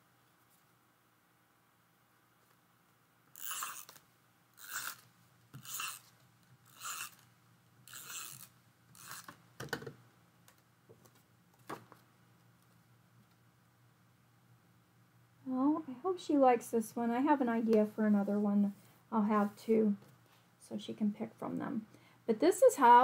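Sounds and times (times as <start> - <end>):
tape runner rasping on card: 3.4 - 4.0, 4.6 - 5.0, 6.7 - 7.2, 7.9 - 9.4.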